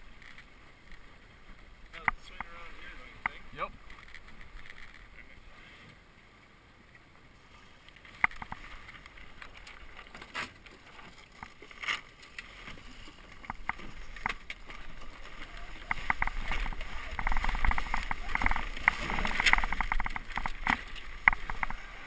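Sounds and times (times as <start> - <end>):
water washing along hull: 0.0 - 22.0
rigging clicks and knocks: 15.8 - 21.8.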